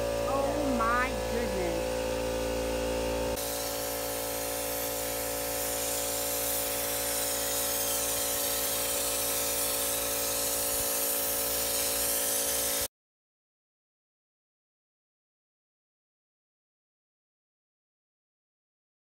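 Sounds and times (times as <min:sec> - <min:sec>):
steady hum: 0:00.0 - 0:03.4
spray gun hissing: 0:00.0 - 0:12.9.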